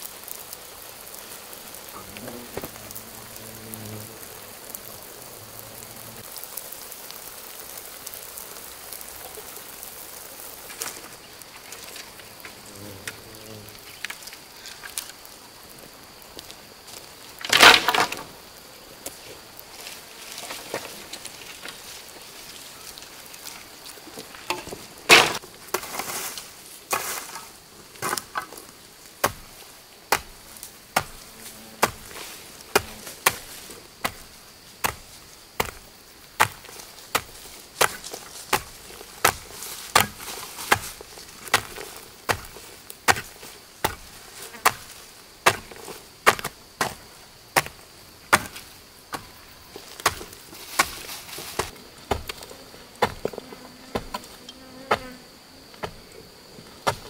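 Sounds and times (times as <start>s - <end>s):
insects buzzing: 0.0s - 57.0s
dry branches clattering: 16.9s - 18.5s, 19.1s - 52.5s
hoe chopping into dry earth: 24.5s - 26.2s, 29.2s - 52.4s.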